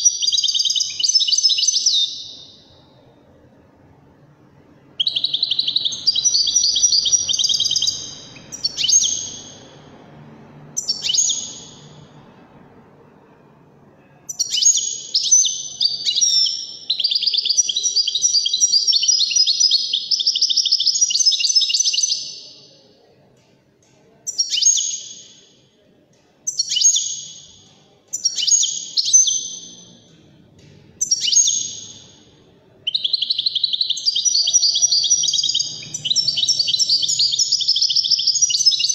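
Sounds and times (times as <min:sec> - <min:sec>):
goldfinch singing: 0:05.0 - 0:09.7, 0:10.8 - 0:12.0, 0:32.8 - 0:38.9.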